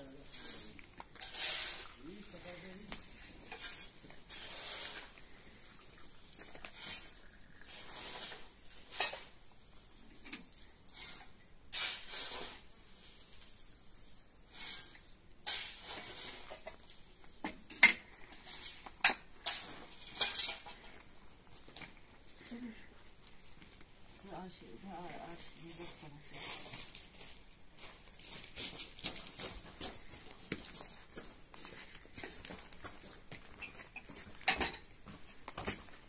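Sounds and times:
dishes and utensils clinking: 18.6s - 21.0s, 33.5s - 34.9s.

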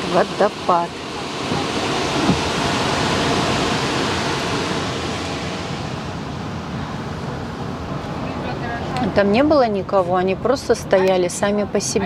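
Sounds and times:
waterfall rushing: 0.0s - 8.5s.

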